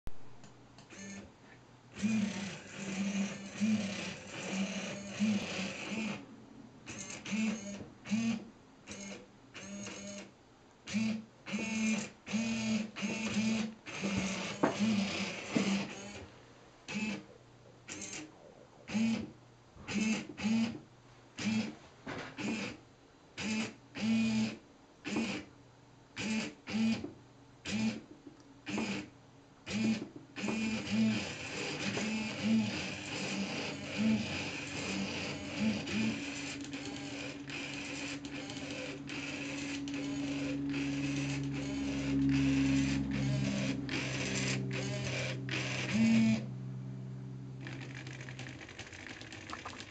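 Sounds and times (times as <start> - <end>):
servos whirring: 0.8 - 1.2, 2.0 - 6.2, 6.9 - 10.3, 10.9 - 16.2, 16.9 - 17.3, 18.9 - 19.2, 29.7 - 46.5.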